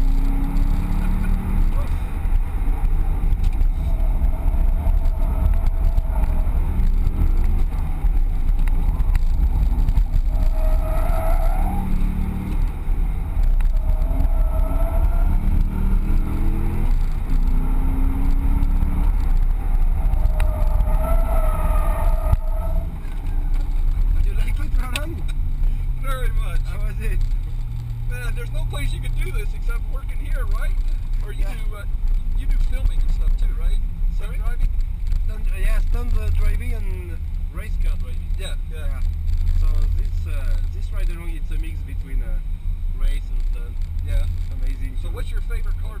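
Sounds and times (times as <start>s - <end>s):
car engine revving: 0.0s - 46.0s
tyres squealing: 10.0s - 12.7s, 19.4s - 25.3s.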